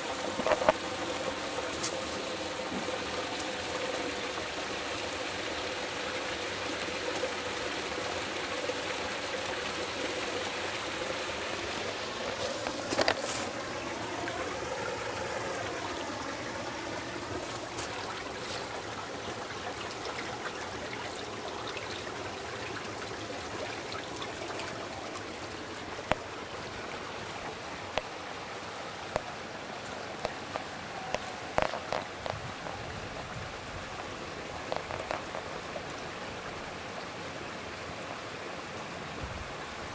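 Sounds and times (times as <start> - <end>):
fountain water splashing: 0.0 - 39.9.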